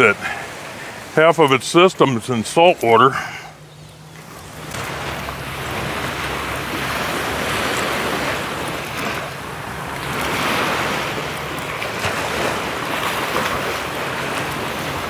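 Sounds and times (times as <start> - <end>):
surf washing onto beach: 4.2 - 15.0.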